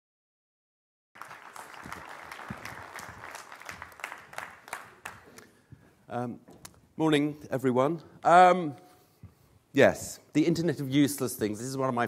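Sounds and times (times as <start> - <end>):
audience applause: 1.2 - 5.5.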